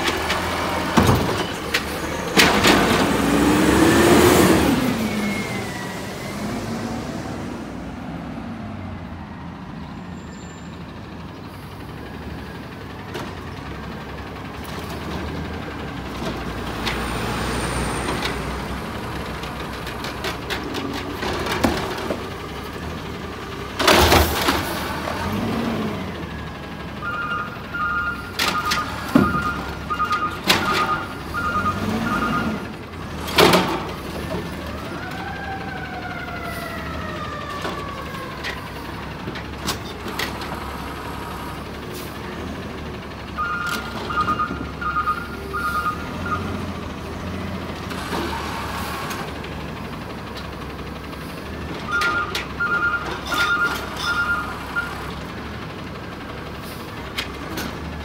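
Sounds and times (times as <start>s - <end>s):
loud bangs of cart dumping: 0.0s - 4.1s, 23.7s - 25.3s
garbage truck engine revving: 0.0s - 9.5s, 11.1s - 58.0s
two-tone beeping alarm: 27.0s - 32.6s, 43.4s - 46.5s, 51.9s - 55.0s.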